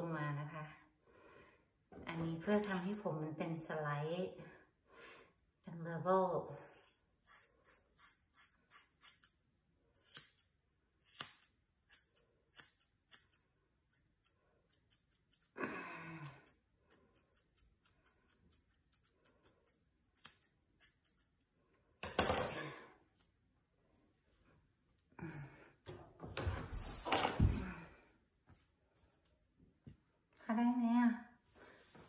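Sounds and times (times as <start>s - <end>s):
scissors snipping hair: 2.5s - 3.0s, 6.8s - 9.4s, 10.0s - 15.6s, 16.2s - 21.4s.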